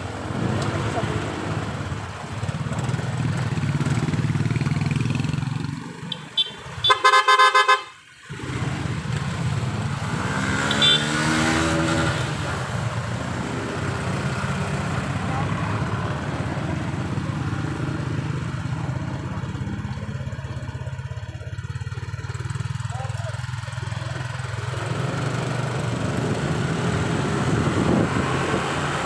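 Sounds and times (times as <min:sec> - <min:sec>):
road noise: 0:00.0 - 0:29.0
scooter engine: 0:00.0 - 0:29.0
short horn beeps: 0:06.1 - 0:08.0, 0:10.6 - 0:11.2
passing engine: 0:08.2 - 0:29.0.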